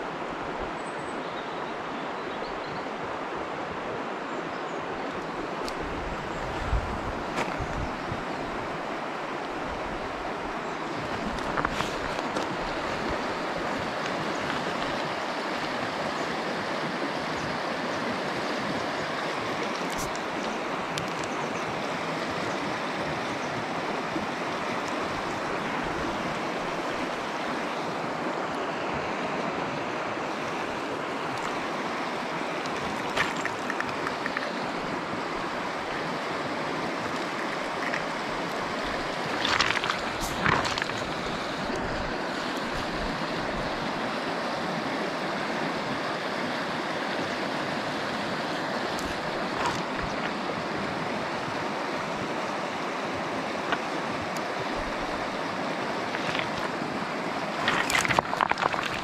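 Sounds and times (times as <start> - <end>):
river rushing over stones: 0.0 - 59.0.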